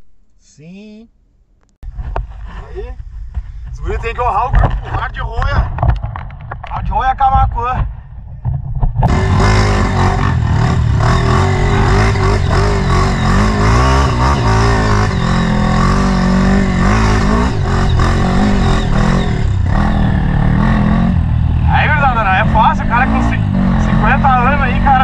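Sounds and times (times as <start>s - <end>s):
dirt bike engine revving: 9.1s - 25.0s.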